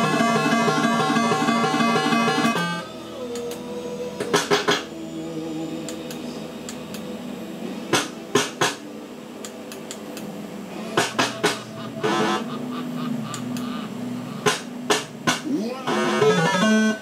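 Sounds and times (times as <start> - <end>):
steady electronic tones: 0.0 - 3.1, 10.6 - 17.0.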